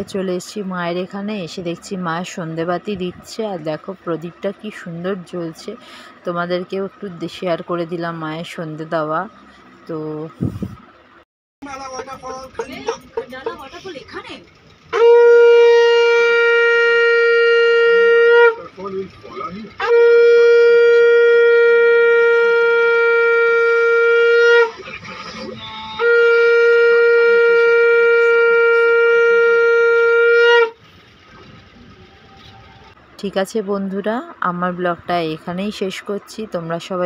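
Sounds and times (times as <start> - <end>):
conch shell blasts: 14.9 - 18.9, 19.7 - 30.8.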